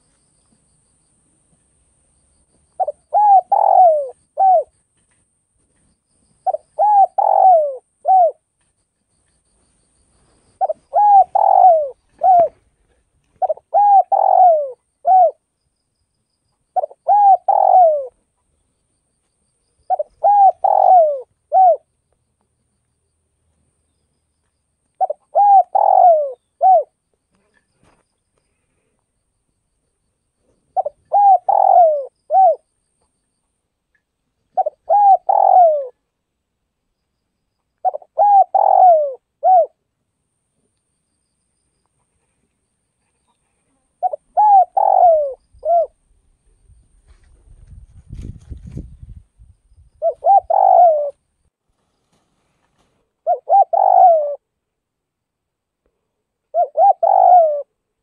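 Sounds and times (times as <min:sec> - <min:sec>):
dove cooing: 0:02.8 - 0:04.7, 0:06.4 - 0:08.4, 0:10.6 - 0:15.4, 0:16.8 - 0:18.2, 0:19.9 - 0:21.9, 0:25.0 - 0:27.6, 0:30.5 - 0:32.7, 0:34.5 - 0:36.0, 0:37.8 - 0:39.8, 0:43.2 - 0:46.0, 0:50.0 - 0:51.2, 0:53.2 - 0:54.5, 0:56.5 - 0:57.8.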